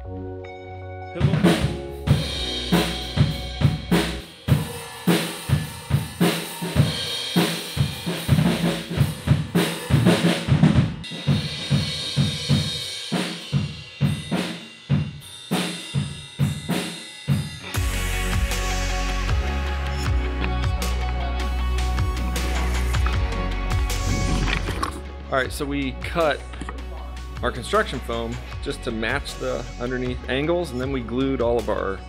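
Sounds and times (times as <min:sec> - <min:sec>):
drum kit beat: 0:01.2 - 0:32.0.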